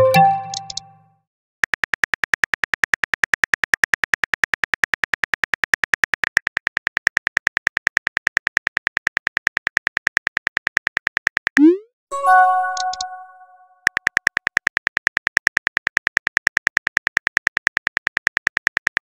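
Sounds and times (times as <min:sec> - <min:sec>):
phone keyboard typing clicks: 0:00.0 - 0:01.0, 0:12.6 - 0:13.2.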